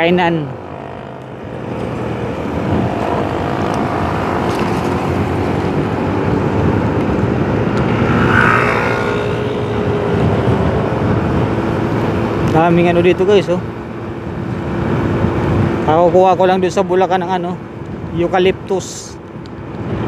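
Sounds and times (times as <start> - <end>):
road noise: 0.0 - 20.0
wind rush: 0.0 - 20.0
motorcycle engine running: 0.6 - 13.0.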